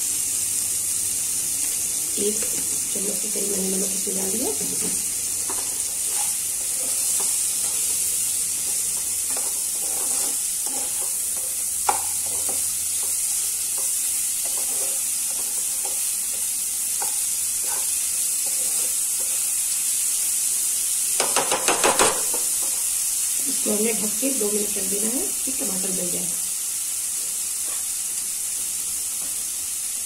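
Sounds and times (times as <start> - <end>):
food sizzling in a frying pan: 0.0 - 30.0
spatula scraping and tapping pan: 4.6 - 19.6, 21.2 - 22.8, 27.6 - 28.0.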